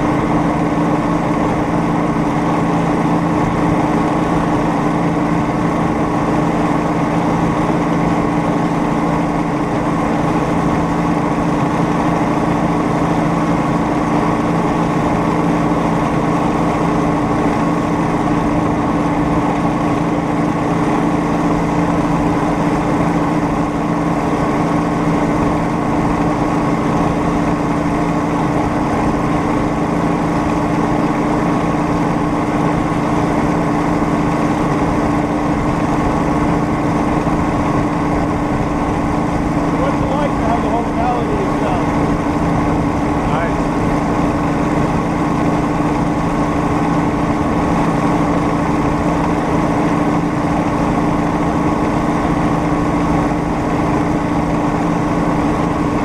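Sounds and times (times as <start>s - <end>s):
rail speeder engine droning: 0.0s - 56.0s.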